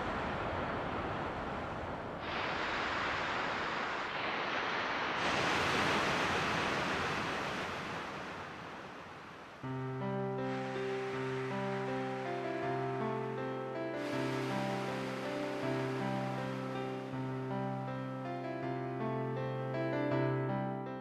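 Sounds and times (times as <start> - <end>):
steady rushing hiss: 0.0 - 19.4
music: 9.6 - 21.0.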